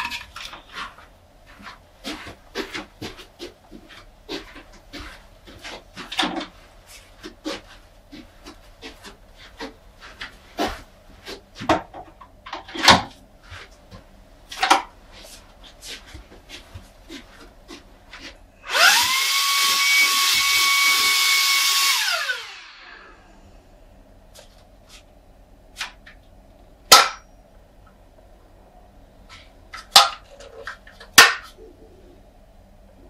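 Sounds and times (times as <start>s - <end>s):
handheld vacuum cleaner motor whining: 18.6s - 23.2s.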